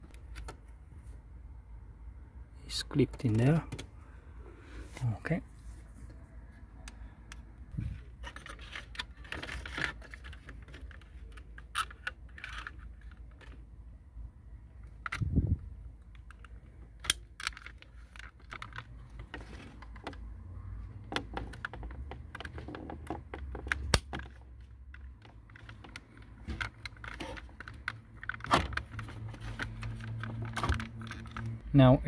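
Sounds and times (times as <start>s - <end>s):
plastic clicks and rattles: 8.2s - 13.6s, 16.0s - 20.3s, 21.0s - 31.6s.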